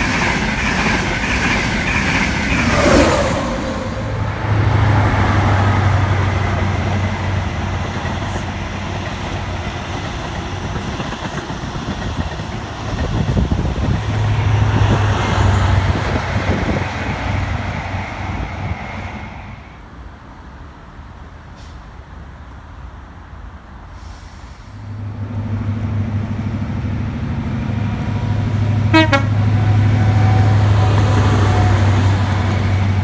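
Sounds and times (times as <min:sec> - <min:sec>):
train wheel noise: 0:00.0 - 0:19.8, 0:24.5 - 0:33.0
electric train passing: 0:00.0 - 0:21.5, 0:22.1 - 0:33.0
diesel train engines droning: 0:00.0 - 0:33.0.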